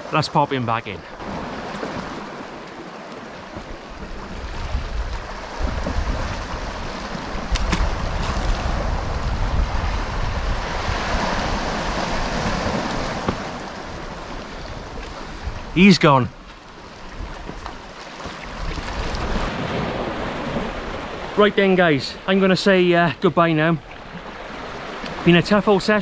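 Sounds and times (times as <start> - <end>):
sea waves washing against rocks: 0.0 - 26.0
wind buffeting microphone: 3.5 - 16.1.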